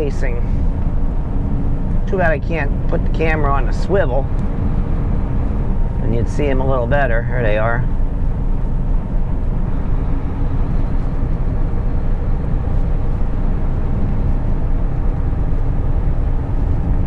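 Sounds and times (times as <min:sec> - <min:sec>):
road rumble: 0:00.0 - 0:17.0
truck engine drone: 0:00.0 - 0:17.0.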